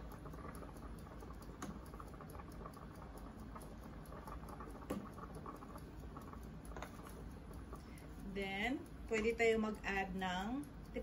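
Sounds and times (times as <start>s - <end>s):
porridge boiling and bubbling: 0.0s - 11.0s.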